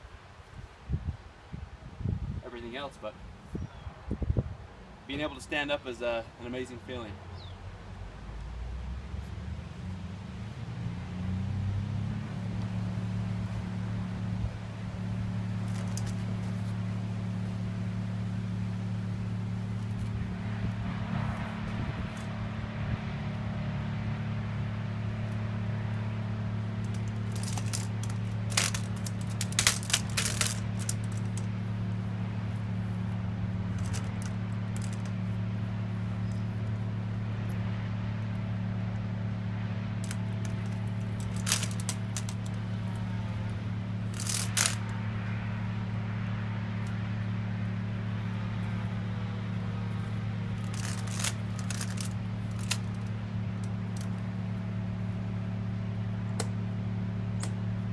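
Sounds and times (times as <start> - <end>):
steady low hum: 0.0 - 57.9
metallic clicks and rattles: 26.8 - 31.5, 33.7 - 35.1, 40.0 - 42.6, 44.1 - 44.9, 50.6 - 54.2.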